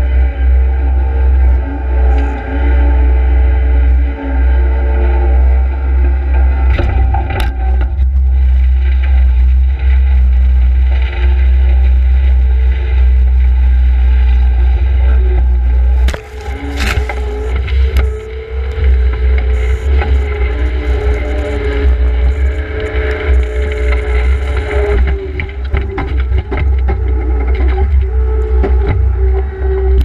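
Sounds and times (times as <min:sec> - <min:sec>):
loader engine running: 0:00.0 - 0:30.0
knocks and scraping in dirt: 0:15.3 - 0:29.4.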